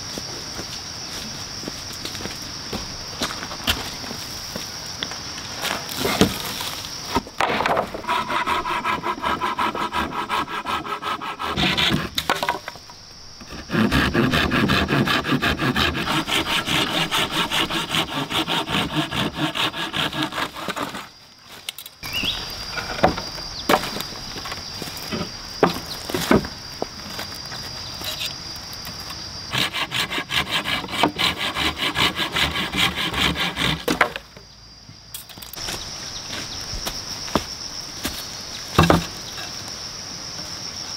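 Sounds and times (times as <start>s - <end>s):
hand saw cutting wood: 7.4s - 12.5s, 13.4s - 21.1s, 29.5s - 34.2s.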